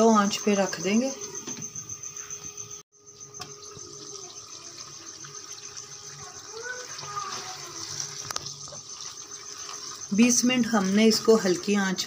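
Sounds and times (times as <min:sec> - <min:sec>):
curry bubbling and sizzling: 0:03.2 - 0:12.0.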